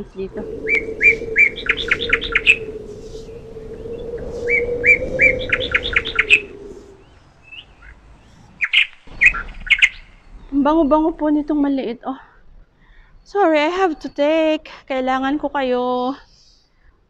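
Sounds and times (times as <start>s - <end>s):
steady low hum: 0.0s - 7.5s
songbird singing: 0.0s - 12.0s, 12.9s - 15.7s.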